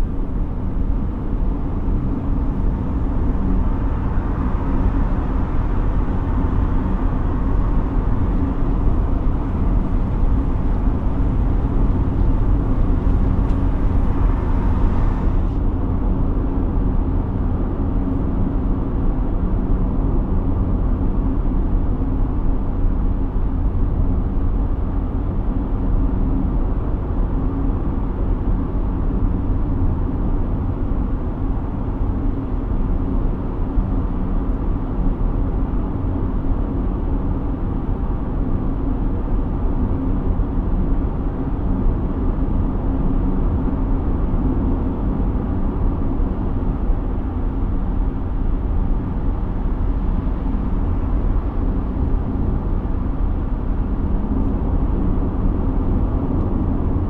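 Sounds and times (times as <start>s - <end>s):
car engine and tyre rumble: 0.0s - 57.0s
high road hiss: 3.2s - 15.6s.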